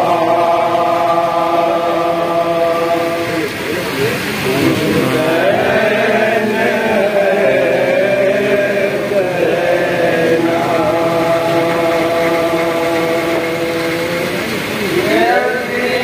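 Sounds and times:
men chanting a lament: 0.0s - 16.0s.

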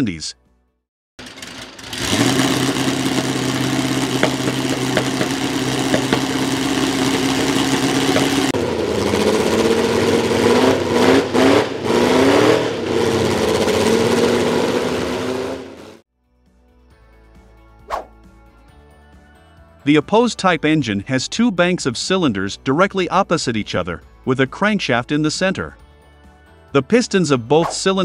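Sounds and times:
racing engine revving: 1.2s - 16.0s.

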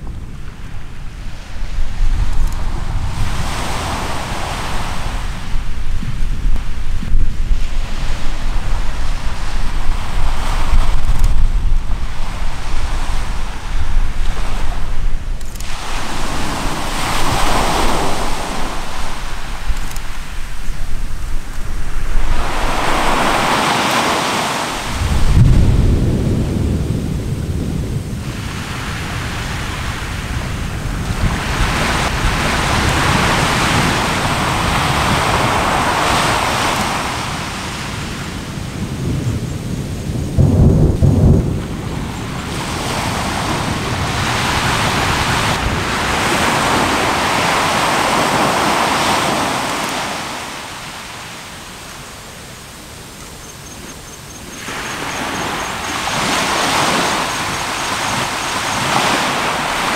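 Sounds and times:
surf washing ashore: 0.0s - 59.9s
deep volcanic eruption booms: 24.8s - 35.9s, 37.0s - 47.0s.

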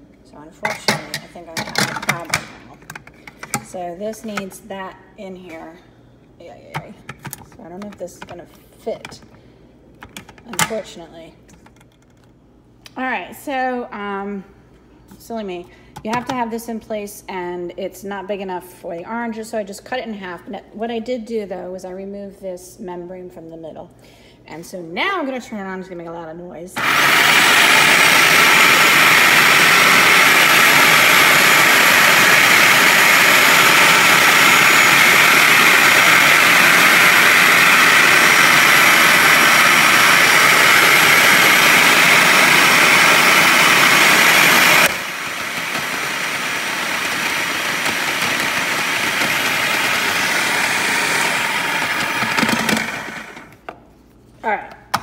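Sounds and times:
food processor motor running: 26.8s - 53.6s.

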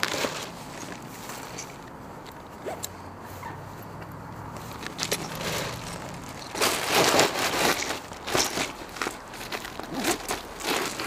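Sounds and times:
fabric bag rustling: 0.0s - 2.0s, 4.6s - 11.0s.

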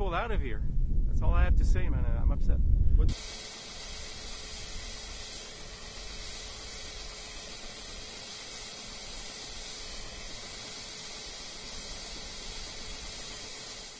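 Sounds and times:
helicopter rotor rushing hiss: 3.1s - 13.9s.

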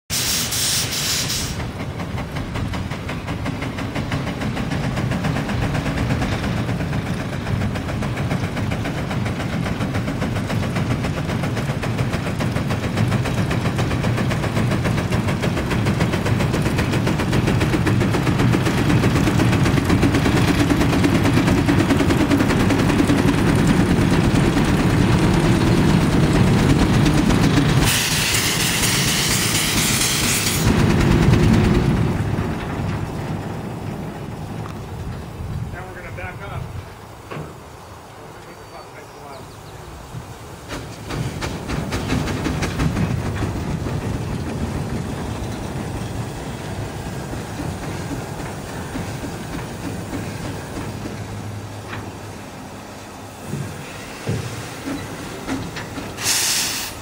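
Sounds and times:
steam hissing from cylinder cocks: 0.1s - 31.7s, 34.6s - 57.0s
steam engine exhaust chuffing: 0.1s - 37.1s, 40.2s - 57.0s.

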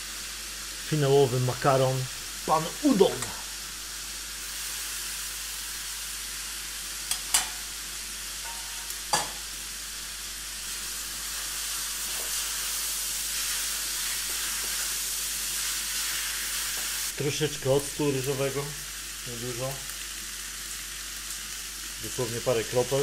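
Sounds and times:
noodles sizzling in a wok: 0.0s - 23.0s.

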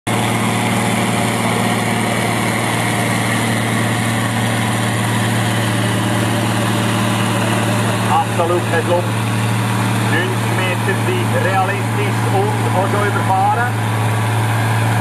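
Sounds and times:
tractor diesel engine under load: 0.1s - 15.0s.

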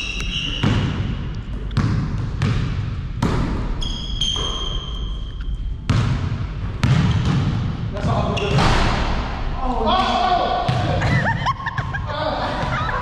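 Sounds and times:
high squeal: 0.0s - 0.9s, 3.8s - 5.6s
basketball bouncing on court: 0.2s - 5.1s, 5.8s - 9.4s, 10.6s - 12.0s.

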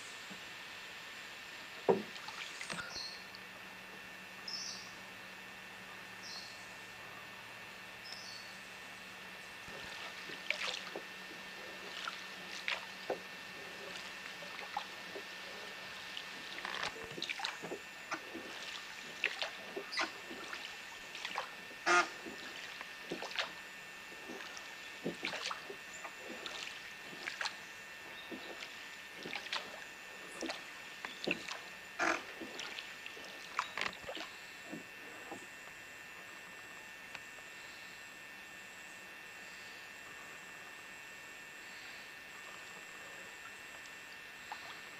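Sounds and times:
faint steady hum: 0.0s - 44.9s
oars splashing in water: 1.8s - 3.0s, 9.6s - 35.6s.

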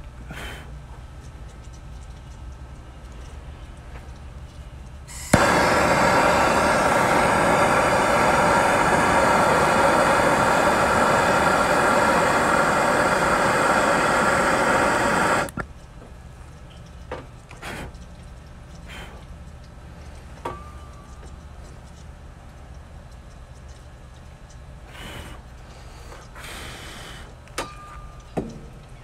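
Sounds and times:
gas torch hissing: 5.1s - 15.6s, 24.9s - 25.4s, 26.4s - 27.3s
torch lighting click: 5.1s - 15.6s.

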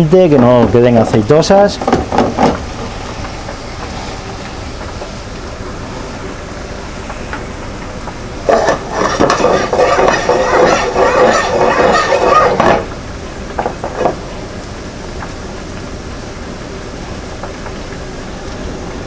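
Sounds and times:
pan scraping and rattling on stovetop: 8.5s - 12.9s.

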